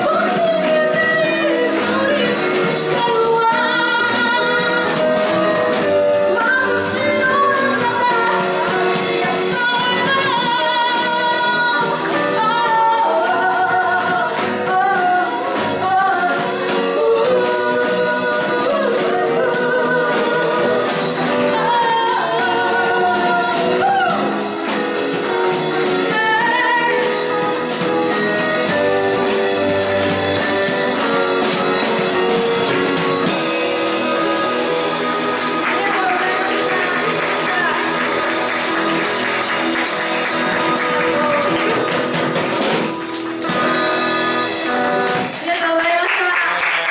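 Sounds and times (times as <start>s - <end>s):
woman singing lead vocal: 0.0s - 28.2s, 34.1s - 38.4s, 45.4s - 46.4s
guitars: 0.0s - 46.1s
drum kit: 0.0s - 46.9s.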